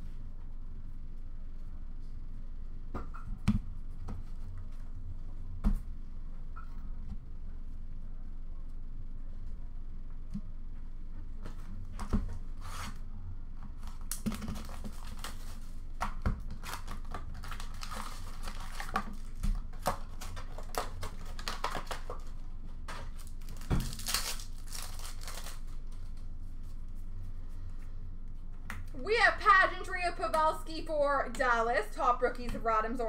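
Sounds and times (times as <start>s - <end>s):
wrappers crinkling: 13.8s - 15.8s, 16.5s - 22.4s, 23.0s - 26.3s
card packs tearing open: 13.9s - 15.6s, 16.5s - 22.3s, 23.0s - 25.8s.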